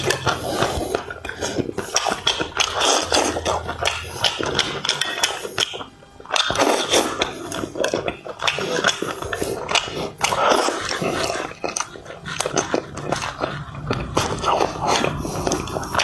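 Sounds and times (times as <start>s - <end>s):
close chewing and slurping: 0.0s - 16.0s.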